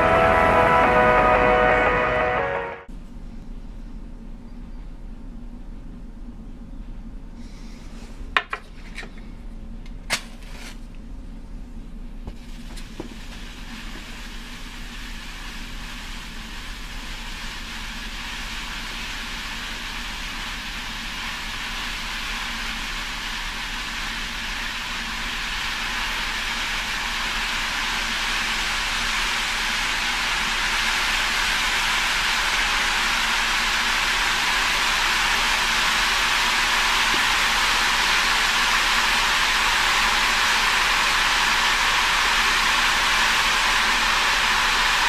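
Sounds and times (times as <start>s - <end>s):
hissing crackling sizzle: 12.3s - 45.0s.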